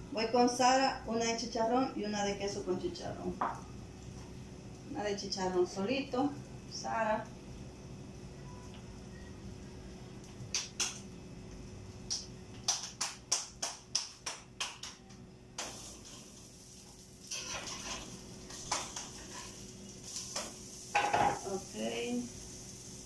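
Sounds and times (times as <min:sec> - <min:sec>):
hands slapping dough: 0:10.5 - 0:11.0, 0:12.1 - 0:15.2
soft hissing: 0:15.6 - 0:23.0.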